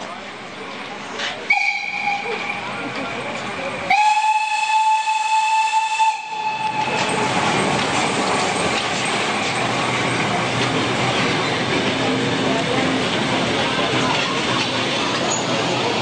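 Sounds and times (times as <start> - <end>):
steam whistle blast: 1.5 - 2.4, 3.9 - 6.8.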